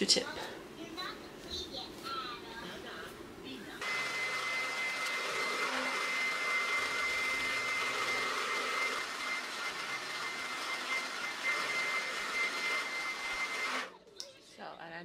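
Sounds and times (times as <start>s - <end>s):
hair dryer blowing: 3.8s - 13.9s.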